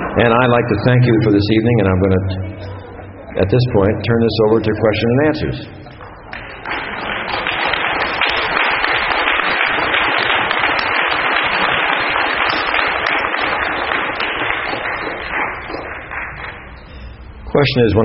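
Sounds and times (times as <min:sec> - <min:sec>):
audience applauding: 0:05.9 - 0:17.2.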